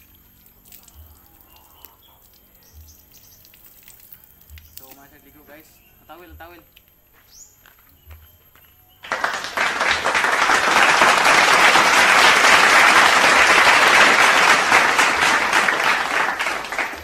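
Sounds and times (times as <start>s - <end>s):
loud applause: 9.0s - 17.0s.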